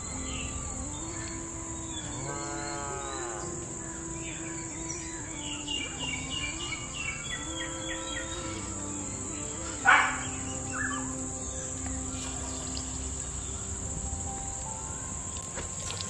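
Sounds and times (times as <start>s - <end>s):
bird chirping: 0.0s - 16.0s
insects droning: 0.0s - 16.0s
cow mooing: 1.1s - 13.5s.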